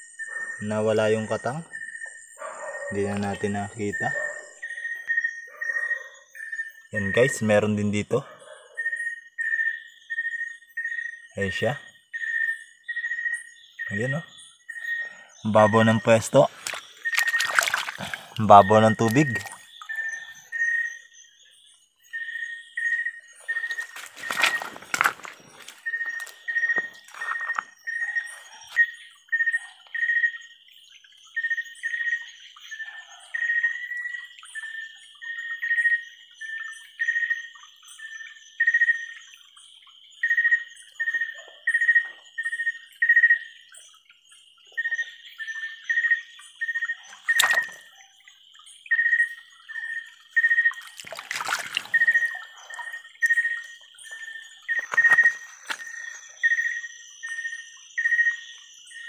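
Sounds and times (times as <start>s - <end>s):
insect trill: 0.0s - 59.0s
water splashes: 15.8s - 20.2s, 23.4s - 27.8s, 47.1s - 47.9s, 50.4s - 53.8s.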